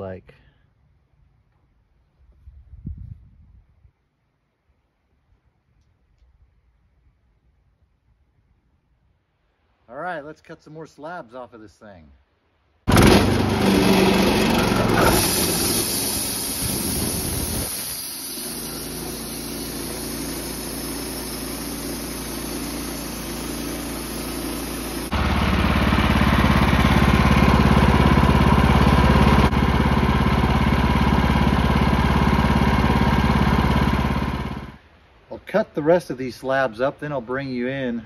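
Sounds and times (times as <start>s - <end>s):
sawmill engine and blade sawing: 12.9s - 34.8s.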